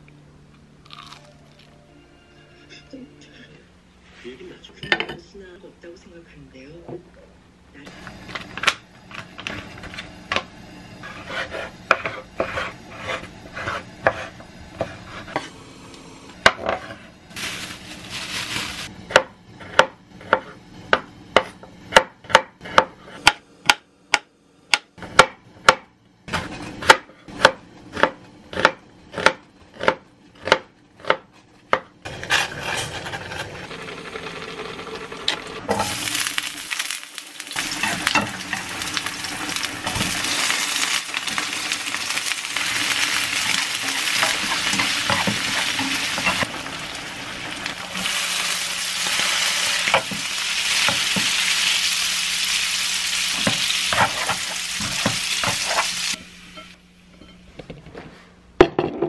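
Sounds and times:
garlic sizzling in oil: 17.3 - 19.0, 32.1 - 56.8
knife chopping on wooden board: 19.1 - 31.9.

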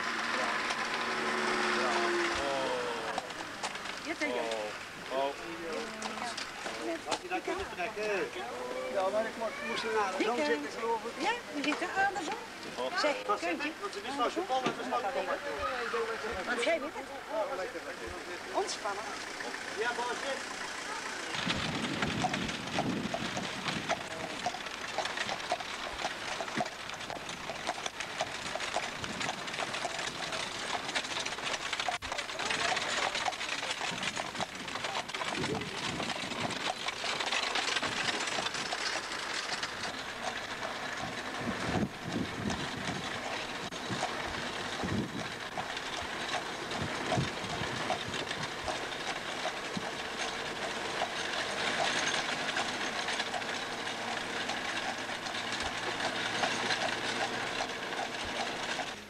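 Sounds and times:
hooves clattering on pavement: 0.0 - 59.0.

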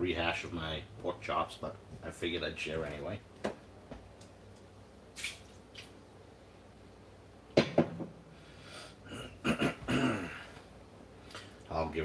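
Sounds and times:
man coughing: 9.1 - 10.5.

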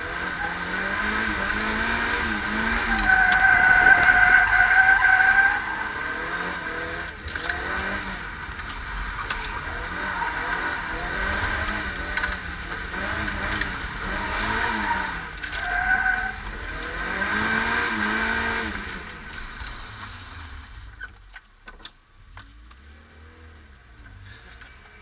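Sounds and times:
car engine revving: 0.0 - 21.1
tyre squeal: 2.7 - 6.0, 14.6 - 16.4.

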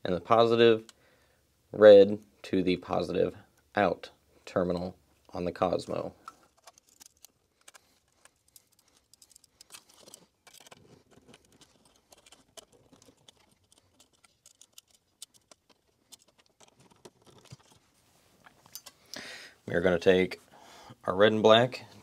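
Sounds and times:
screwdriver clicks and scratches: 6.3 - 17.8.

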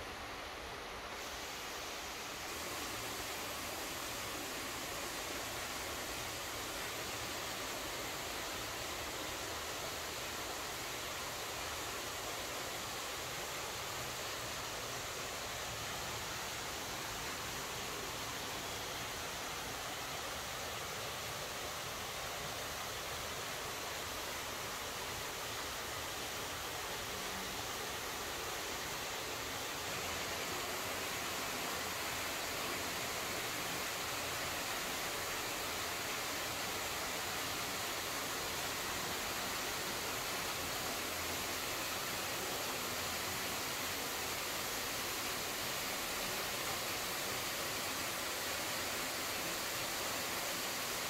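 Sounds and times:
steady hiss: 0.0 - 51.0.

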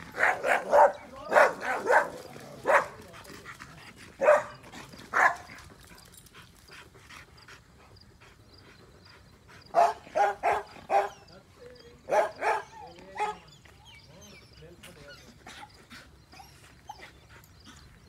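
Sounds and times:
dog barking: 0.2 - 3.0, 4.2 - 5.5, 9.7 - 11.2, 12.1 - 13.4.

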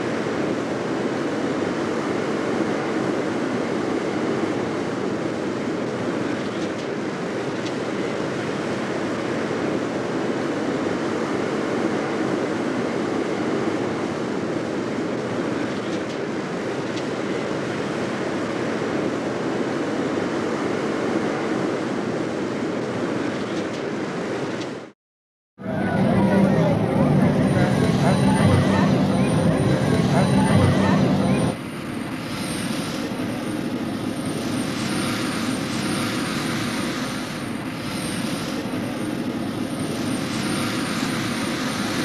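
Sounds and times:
jet aircraft rumble: 25.6 - 42.0.

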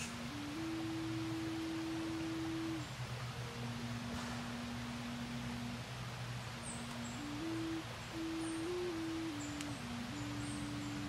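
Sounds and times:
low steady hum: 0.0 - 11.0
whistle-like tones tune: 6.6 - 11.0.

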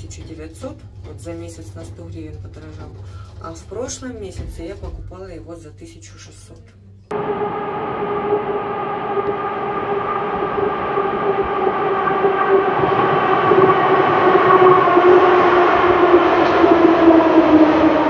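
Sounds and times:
rumbling rail noise: 7.1 - 18.0
train whine: 7.1 - 18.0.

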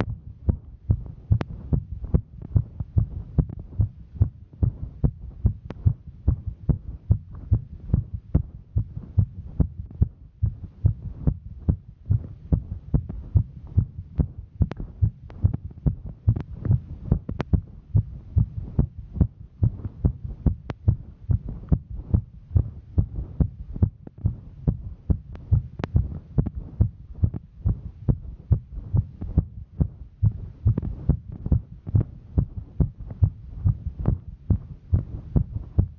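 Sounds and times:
heartbeat thuds: 0.0 - 35.9.

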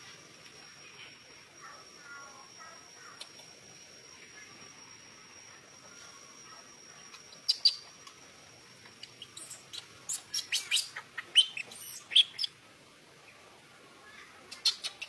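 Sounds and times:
baby monkey squeaking: 9.2 - 12.5.

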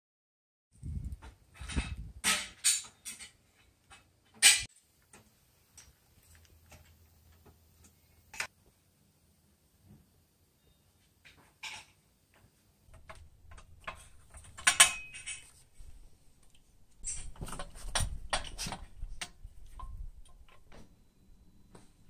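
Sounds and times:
metal tools clinking: 12.9 - 16.0, 16.9 - 20.8
ringing metal knocks: 13.0 - 15.5.

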